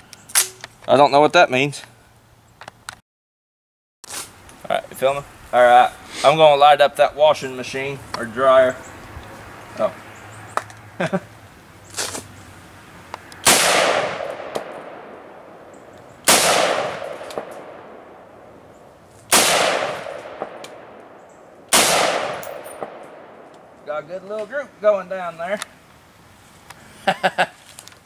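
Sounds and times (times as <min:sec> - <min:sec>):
rifle shots with echo: 0:13.4 - 0:18.5, 0:19.3 - 0:23.7.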